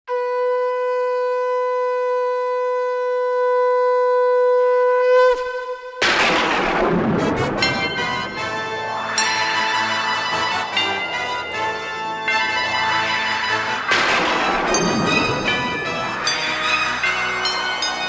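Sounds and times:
conch shell blown: 0:00.1 - 0:06.0
loud crash: 0:06.0 - 0:11.6, 0:13.6 - 0:18.0
music with pitched tones: 0:07.0 - 0:18.0.

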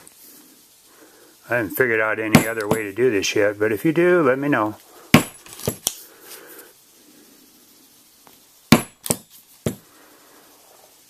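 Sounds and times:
plastic mallet striking metal punch: 0:02.3 - 0:02.8, 0:05.2 - 0:05.8, 0:08.7 - 0:09.8.

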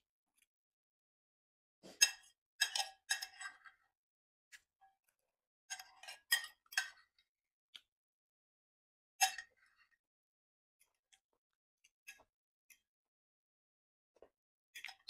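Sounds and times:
spoon scraping ceramic plate: 0:01.9 - 0:03.6.

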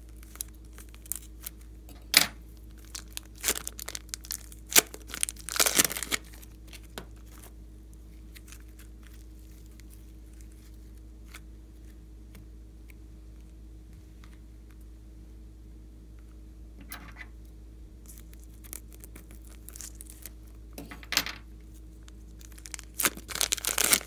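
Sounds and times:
plastic bag crinkling and tearing: 0:00.0 - 0:01.6, 0:02.5 - 0:07.5, 0:08.2 - 0:11.9, 0:18.0 - 0:20.6, 0:22.0 - 0:24.0.

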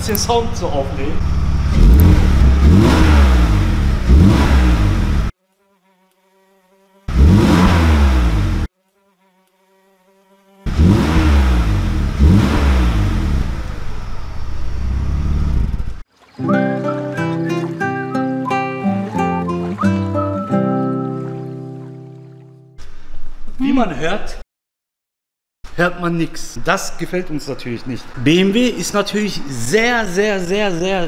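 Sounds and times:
muffled car engine revving: 0:00.0 - 0:05.3, 0:07.1 - 0:08.7, 0:10.7 - 0:16.0
muffled car exhaust idling: 0:10.7 - 0:16.0
acoustic guitar music: 0:16.4 - 0:22.8.

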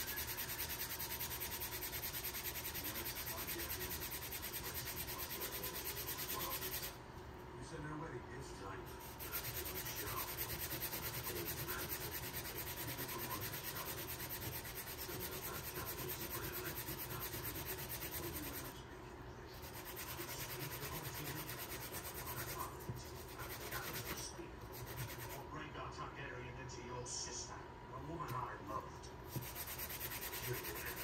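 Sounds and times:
plastic scrubbing against towel: 0:00.0 - 0:07.0, 0:08.9 - 0:18.8, 0:19.6 - 0:25.5, 0:29.2 - 0:31.0.

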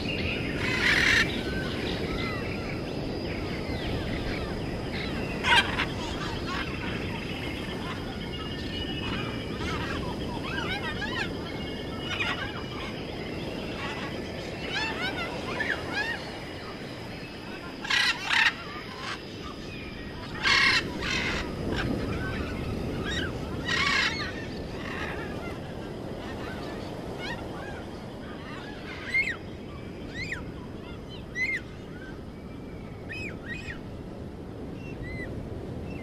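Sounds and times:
loud harsh bird calls: 0:00.0 - 0:02.8, 0:04.3 - 0:16.5, 0:17.4 - 0:29.4
birds chirping: 0:00.0 - 0:34.0.

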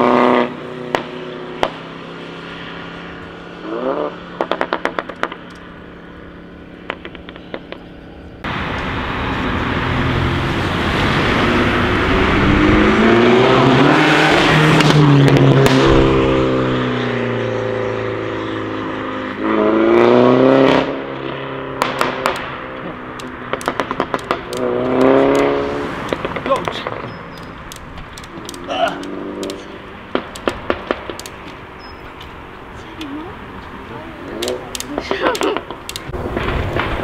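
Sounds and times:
car engine accelerating: 0:00.0 - 0:37.0
exhaust pops and crackles: 0:00.9 - 0:01.9, 0:04.4 - 0:05.7, 0:06.8 - 0:08.9, 0:21.7 - 0:32.4, 0:33.0 - 0:37.0.

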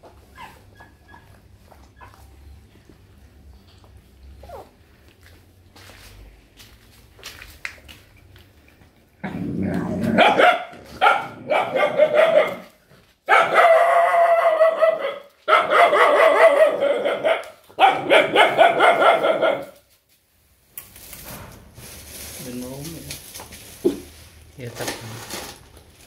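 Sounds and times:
dog snarling and growling: 0:09.2 - 0:12.6.

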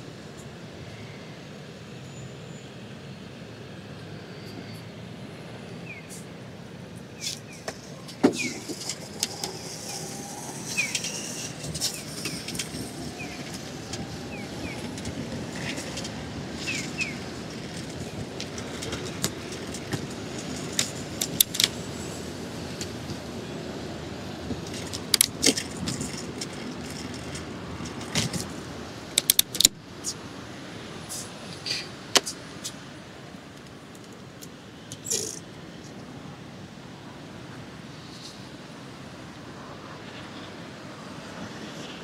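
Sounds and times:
traffic hum: 0:00.0 - 0:42.0
bicycle rattling clicks: 0:08.4 - 0:21.8, 0:24.6 - 0:28.5, 0:29.1 - 0:29.7.

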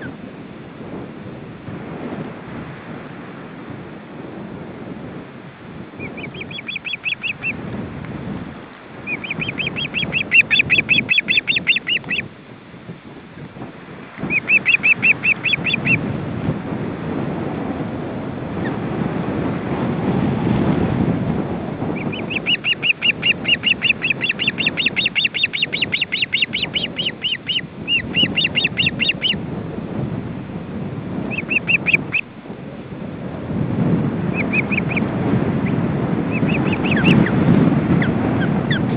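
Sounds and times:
wind on microphone: 0:00.0 - 0:38.9
ospreys piping calls: 0:06.0 - 0:07.6, 0:09.1 - 0:12.3, 0:14.2 - 0:16.0, 0:22.0 - 0:29.4, 0:31.3 - 0:32.2, 0:34.3 - 0:37.4.

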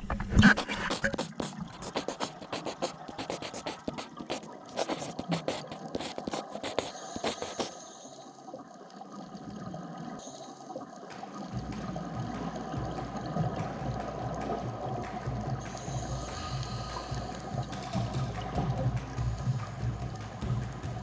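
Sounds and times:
underwater wash: 0:00.0 - 0:21.0
underwater crackle of clicks: 0:10.6 - 0:21.0.

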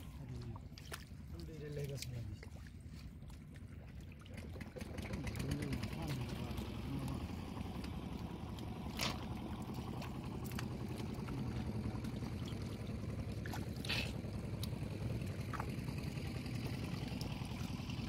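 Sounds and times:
sharp splashes: 0:00.0 - 0:18.0
steady low rumble: 0:00.0 - 0:18.0
hands splashing in water: 0:08.0 - 0:15.9.

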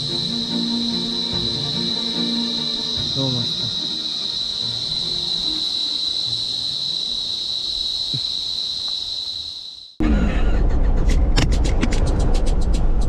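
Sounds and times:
cicadas droning: 0:00.0 - 0:10.0.

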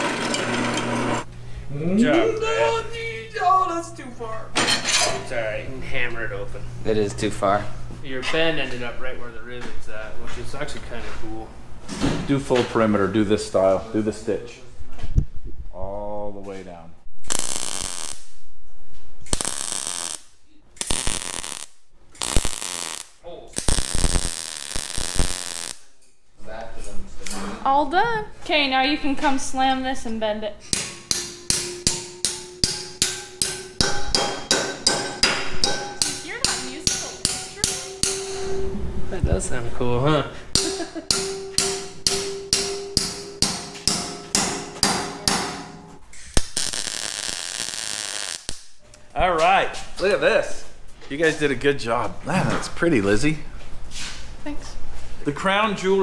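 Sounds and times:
welding arc buzzing: 0:00.0 - 0:01.3, 0:17.3 - 0:18.5, 0:19.2 - 0:25.9, 0:46.3 - 0:48.8
hammer ringing on steel: 0:30.8 - 0:38.7, 0:40.6 - 0:45.8.

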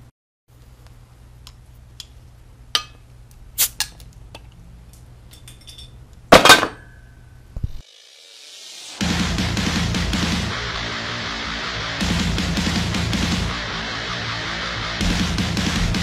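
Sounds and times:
bottle cap hissing pop: 0:03.6 - 0:04.0
metal tool clinking on bottle cap: 0:05.3 - 0:06.0.

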